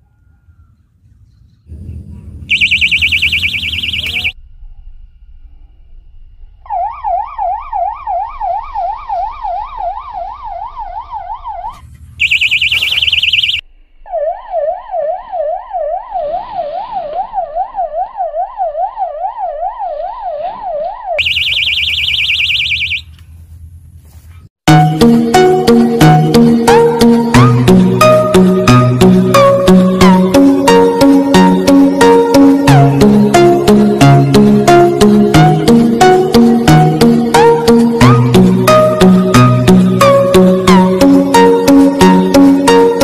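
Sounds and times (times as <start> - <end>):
warbling bite alarm: 2.5 - 4.4, 6.6 - 23.1
shrill buzz: 21.0 - 23.1.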